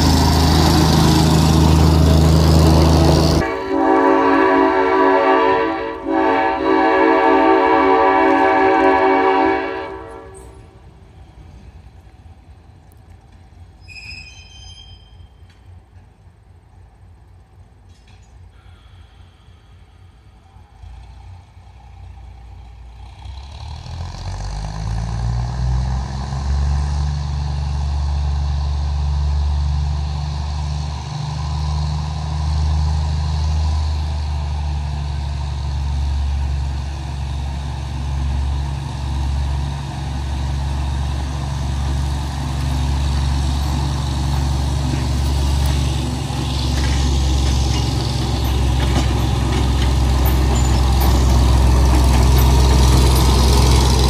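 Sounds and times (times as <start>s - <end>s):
diesel locomotive engine revving: 0.0s - 54.0s.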